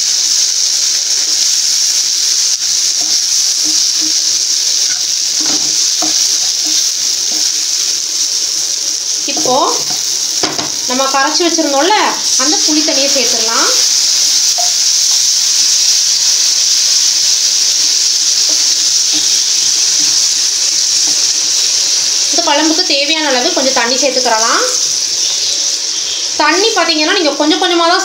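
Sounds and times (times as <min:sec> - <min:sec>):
gravy sizzling in a frying pan: 0:00.0 - 0:28.0
person talking: 0:09.2 - 0:09.9.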